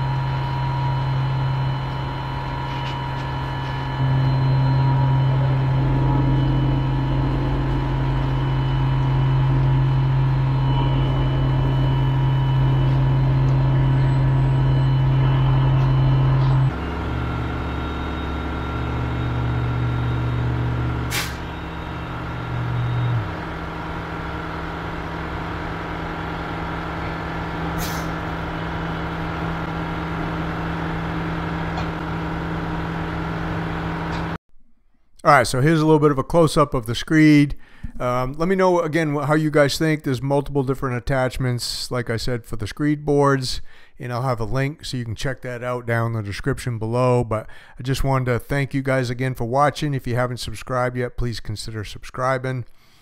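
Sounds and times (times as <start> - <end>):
power screed vibrating hum: 0.0 - 34.4
pump truck engine running: 0.0 - 34.4.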